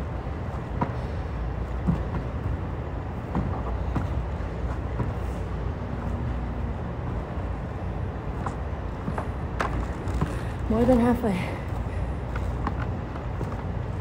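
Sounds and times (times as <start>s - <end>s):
ventilation system rumble: 0.0s - 14.0s
footsteps on wooden floor: 3.2s - 5.4s.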